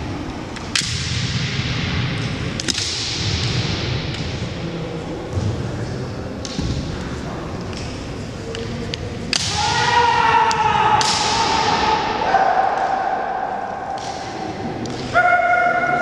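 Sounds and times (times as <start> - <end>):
bamboo swords clacking: 7.6 - 9.8
fighters shouting: 9.5 - 13.8.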